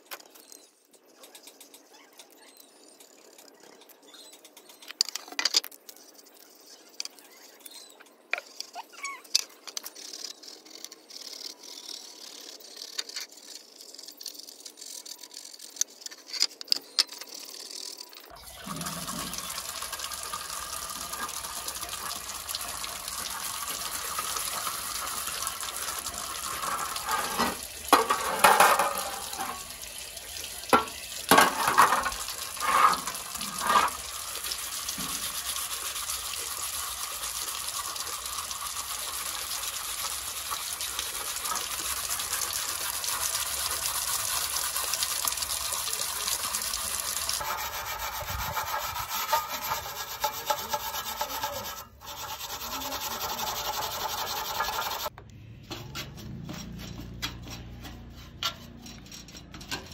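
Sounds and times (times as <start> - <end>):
scouring pad rasping on metal: 31.3 - 34.0, 47.4 - 55.1.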